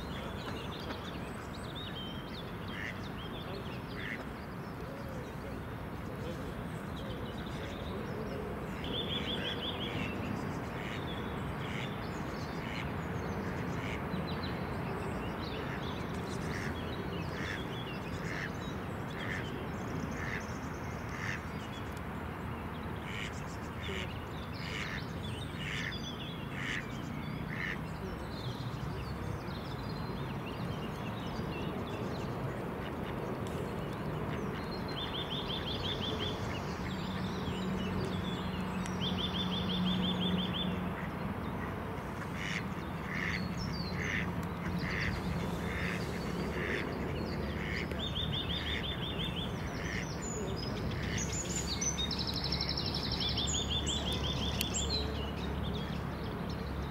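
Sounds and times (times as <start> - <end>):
outdoor background rush: 0.0 - 56.9
ducks quacking: 2.7 - 3.0, 4.0 - 4.2, 16.5 - 16.7, 17.3 - 17.6, 23.1 - 23.3, 23.9 - 25.0, 25.6 - 25.9, 26.6 - 26.8, 27.5 - 27.8, 41.0 - 48.9.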